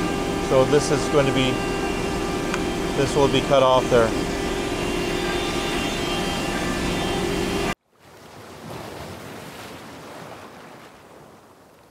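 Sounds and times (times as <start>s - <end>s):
workshop machinery hum: 0.0s - 7.8s
ocean waves washing: 0.0s - 11.9s.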